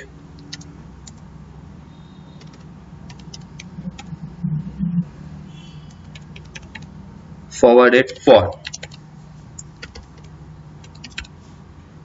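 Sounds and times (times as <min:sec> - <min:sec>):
steady low hum: 0:00.0 - 0:12.0
keyboard keystrokes: 0:00.4 - 0:01.2, 0:02.4 - 0:04.1, 0:06.0 - 0:06.9, 0:08.1 - 0:09.0, 0:09.6 - 0:11.3
short low rumble: 0:03.5 - 0:05.5.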